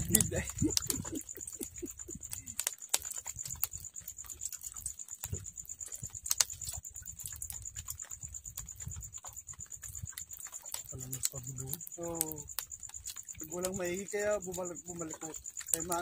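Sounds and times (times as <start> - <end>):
low rumble: 0.0 - 2.5.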